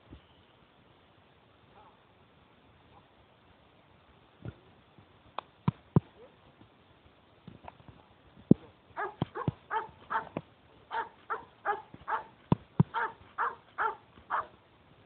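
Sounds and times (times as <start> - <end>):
dog barking: 1.7 - 2.0, 9.0 - 12.3, 12.9 - 14.5.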